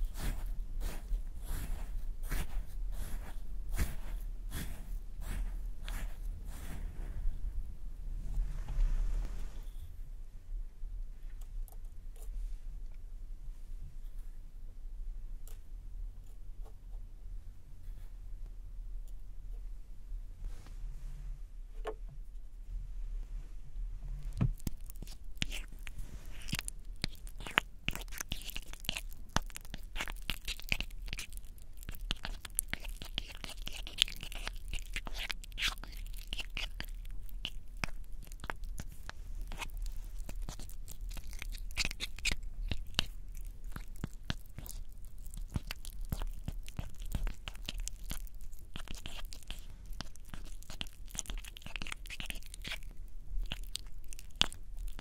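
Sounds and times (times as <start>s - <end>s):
sticky lip balm crackling: 24.4s - 55.0s.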